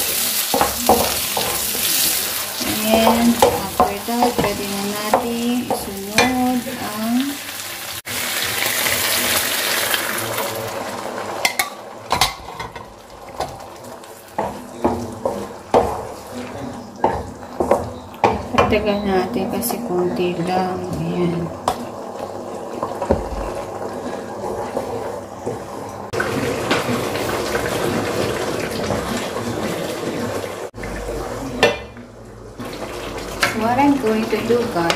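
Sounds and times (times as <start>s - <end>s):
mushrooms sizzling in a wok: 0.0s - 29.5s
wooden spatula scraping: 14.4s - 18.0s
water pouring: 20.8s - 31.6s.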